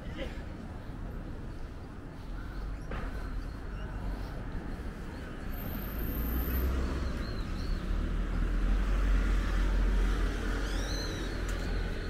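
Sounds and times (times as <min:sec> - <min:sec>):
road traffic rumble: 0:00.0 - 0:12.0.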